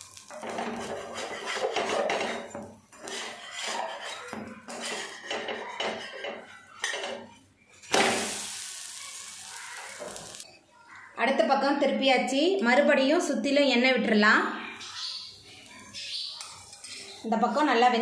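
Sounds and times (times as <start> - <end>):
batter sizzling on hot pan: 0.0 - 6.5, 7.8 - 10.5
metal spatula scraping a pan: 0.1 - 7.4, 16.4 - 17.3.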